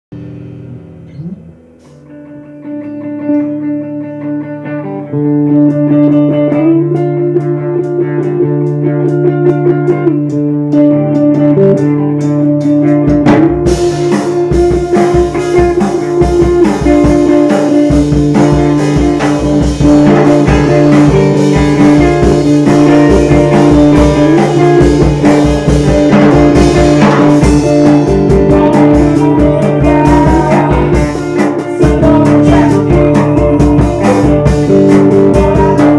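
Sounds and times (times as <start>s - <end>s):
steady bass line: 0.1s - 2.5s, 12.5s - 35.9s
drum kit: 0.1s - 3.6s, 5.4s - 35.9s
guitar riffing: 0.1s - 35.9s.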